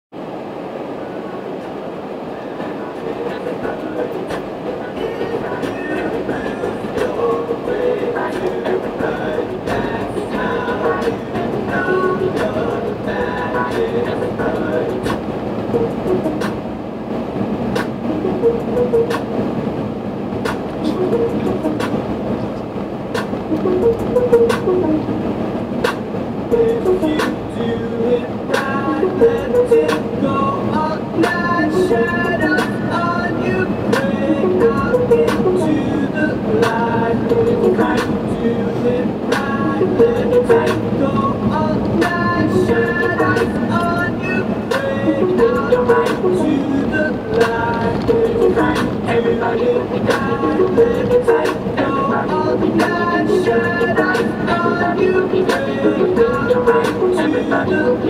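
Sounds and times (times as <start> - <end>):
car tyre and engine noise: 0.1 - 58.0
car knocking over bumps: 47.3 - 49.1.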